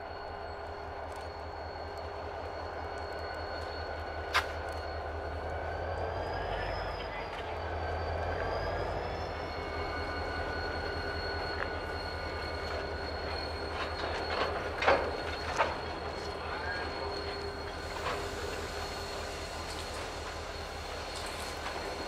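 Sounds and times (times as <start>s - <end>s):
high wheel squeal: 0.0s - 22.0s
low train rumble: 0.0s - 22.0s
wheels clanking over rail joint: 9.9s - 22.0s.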